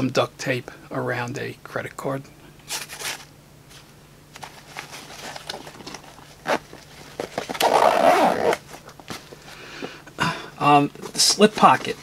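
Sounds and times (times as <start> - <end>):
fabric rustling: 2.7 - 9.6
backpack zipper pulled shut: 7.5 - 8.6.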